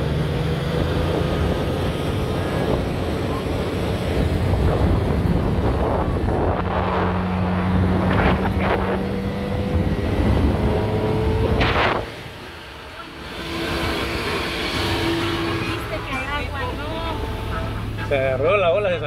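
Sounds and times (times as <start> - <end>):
wind noise: 0.0 - 12.4
vehicle engine rumble: 0.0 - 19.0.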